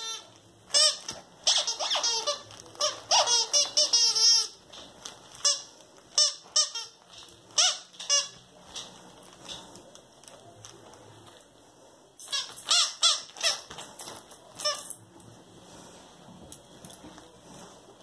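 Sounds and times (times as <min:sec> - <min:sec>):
squeaky dog toy squealing: 0:00.0 - 0:04.6, 0:07.6 - 0:08.4, 0:12.2 - 0:13.7.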